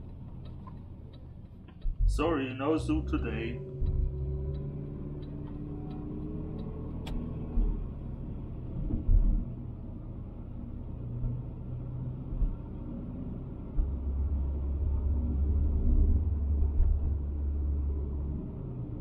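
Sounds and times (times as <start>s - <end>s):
light regular ticking: 0.0s - 7.9s
car engine and tyres rumbling: 0.0s - 19.0s
dull thumps: 3.6s - 5.6s.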